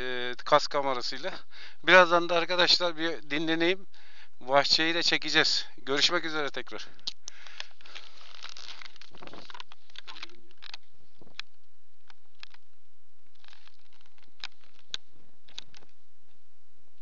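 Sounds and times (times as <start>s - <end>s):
microphone handling rustling: 6.9s - 16.4s.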